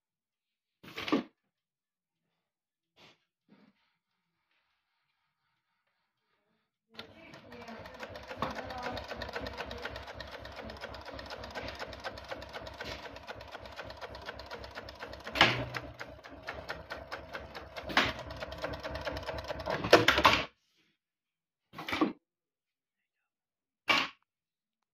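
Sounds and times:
sewing machine clacks: 7.0 - 20.4
sewing machine stitching: 7.0 - 20.5.

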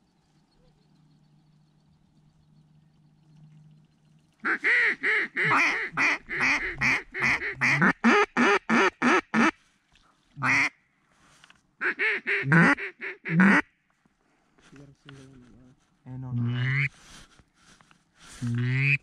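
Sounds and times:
duck call quacking: 4.4 - 9.5, 10.4 - 10.7, 11.8 - 13.6, 18.5 - 19.0.

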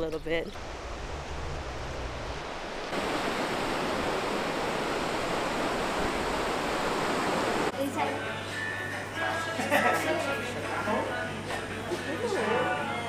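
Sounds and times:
ocean surf breaking: 0.6 - 7.7.

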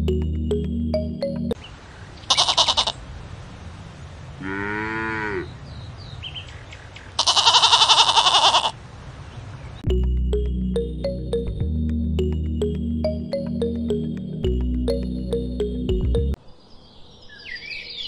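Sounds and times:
sheep bleating: 2.3 - 3.0, 7.2 - 8.8
cow mooing: 4.4 - 5.5.

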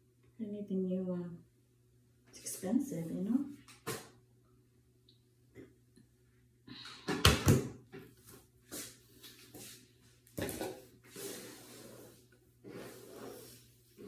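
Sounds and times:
brush drawn through hair: 11.1 - 14.0.

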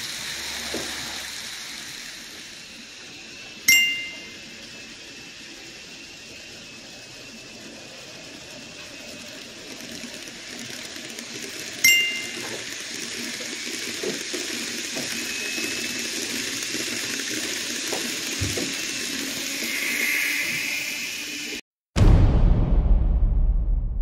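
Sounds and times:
model train passing by: 0.0 - 21.6
sharp metallic ding: 3.7 - 4.4, 11.8 - 12.4.

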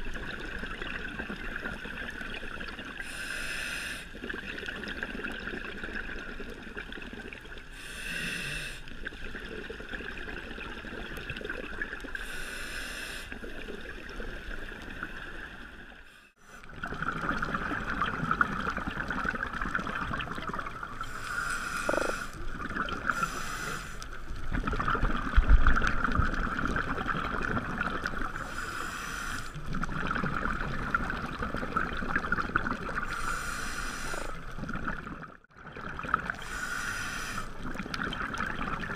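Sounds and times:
diver exhaling bubble bursts: 16.7 - 38.9.

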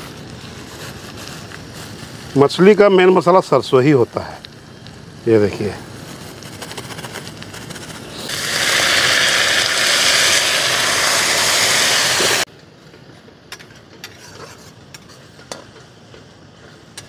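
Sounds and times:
water sizzling in hot pan: 0.0 - 12.5.

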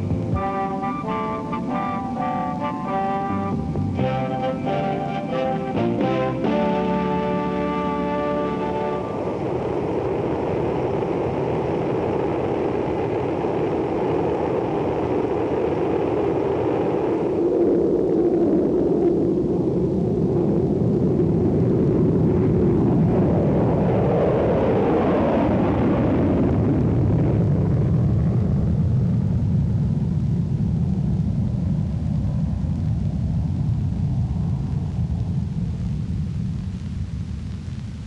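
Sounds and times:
jet engine rumble: 0.0 - 38.0.

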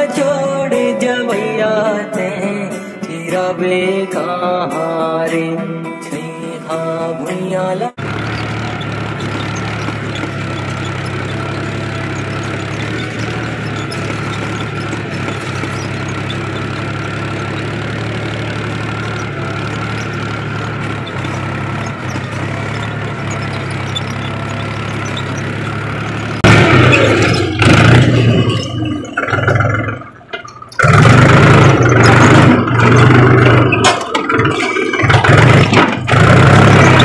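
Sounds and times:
diesel tractor engine running: 8.0 - 37.0.

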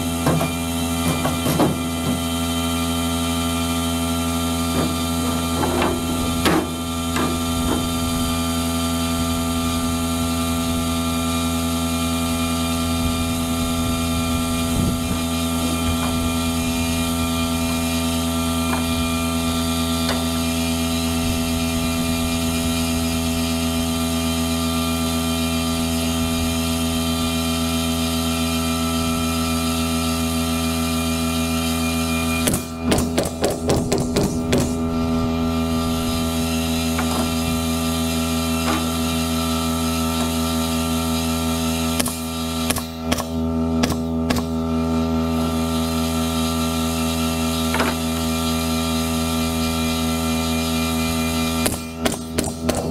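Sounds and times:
motor droning: 0.0 - 52.9
sharp knocks: 0.2 - 2.3, 32.4 - 34.8.

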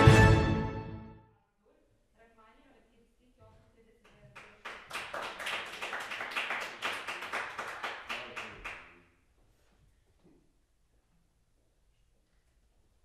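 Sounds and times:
small audience applauding: 4.1 - 9.1.

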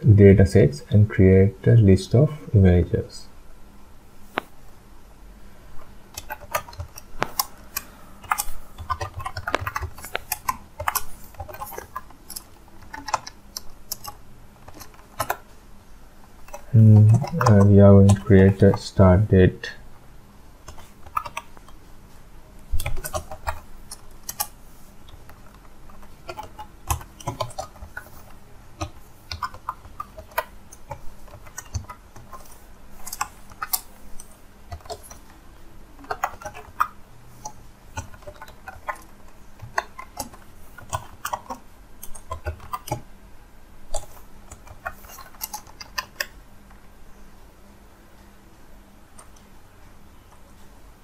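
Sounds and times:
typing on keyboard: 6.1 - 15.5, 16.4 - 18.8, 20.6 - 21.8, 22.8 - 35.4, 36.0 - 43.0, 43.9 - 46.4.

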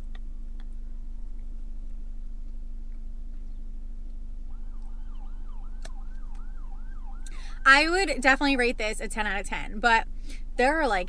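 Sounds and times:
low rumble: 0.0 - 11.0
muffled ambulance siren yelp: 4.5 - 7.7.

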